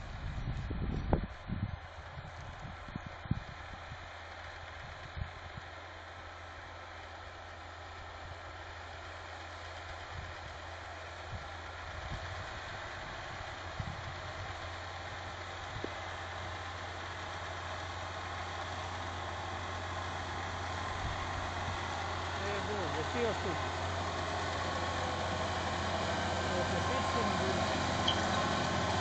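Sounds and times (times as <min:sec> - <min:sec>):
tractor engine under load: 0:00.1 - 0:29.0.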